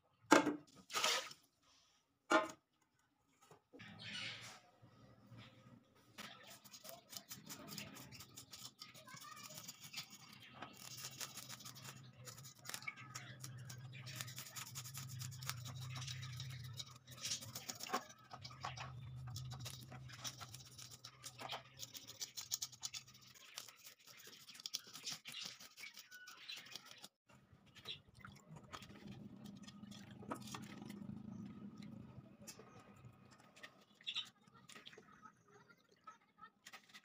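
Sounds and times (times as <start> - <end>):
fish scaler scraping scales: 6.5 - 27.1.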